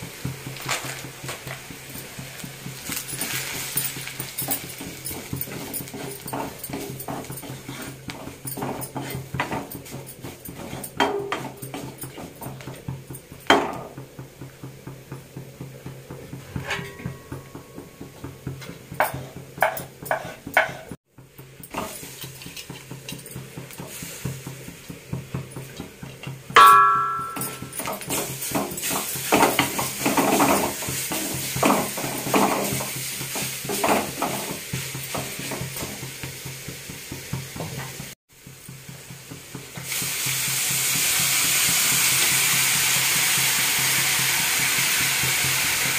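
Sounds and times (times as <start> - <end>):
wooden spatula stirring and scraping: 0.0 - 13.4, 14.0 - 26.5, 28.1 - 38.0
water sizzling in hot pan: 0.0 - 16.1, 21.3 - 45.9
sharp clatter with ringing: 0.8 - 14.5, 15.2 - 20.2, 25.4 - 36.6.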